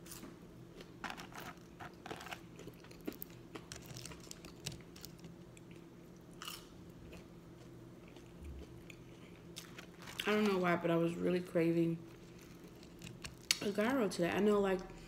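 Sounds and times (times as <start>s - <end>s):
faint steady hum: 0.0s - 15.0s
person chewing food: 0.1s - 10.3s, 12.1s - 13.6s.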